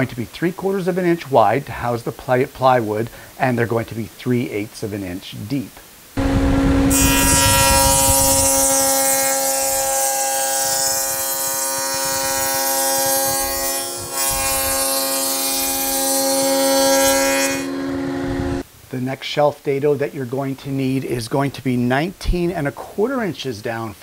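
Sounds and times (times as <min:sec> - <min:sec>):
table saw cutting plywood: 0:06.2 - 0:18.6.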